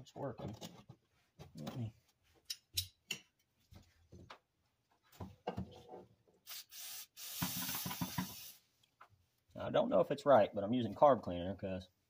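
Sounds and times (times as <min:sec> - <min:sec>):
aerosol spray hissing: 0:06.5 - 0:08.6.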